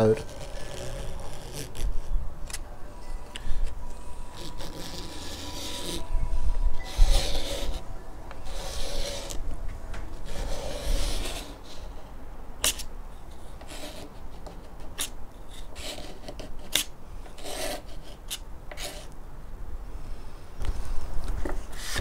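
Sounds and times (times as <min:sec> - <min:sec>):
scraper blade scraping wood: 0:00.0 - 0:02.1, 0:04.3 - 0:06.0, 0:06.9 - 0:07.8, 0:08.4 - 0:09.4, 0:10.2 - 0:11.9, 0:13.5 - 0:19.2.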